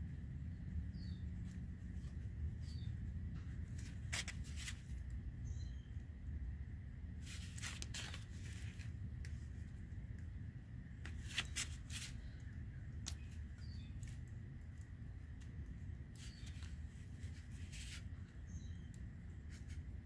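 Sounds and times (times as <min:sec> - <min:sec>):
steady low rumble: 0:00.0 - 0:20.0
faint bird chirps: 0:00.5 - 0:01.6, 0:02.6 - 0:03.5, 0:05.4 - 0:06.3, 0:11.4 - 0:14.2, 0:16.2 - 0:19.6.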